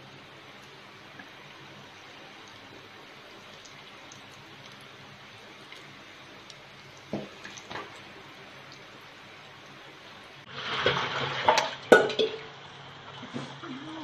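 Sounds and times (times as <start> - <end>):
oil sizzling and bubbling: 0.0 - 13.8.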